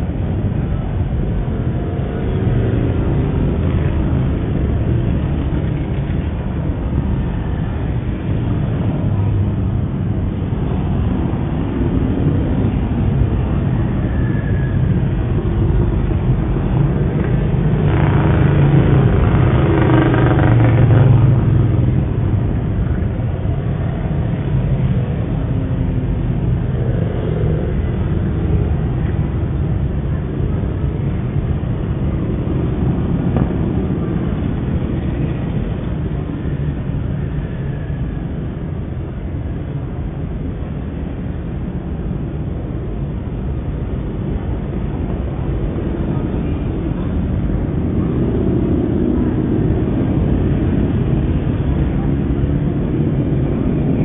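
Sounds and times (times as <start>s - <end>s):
motorcycles riding past: 0.0s - 38.8s.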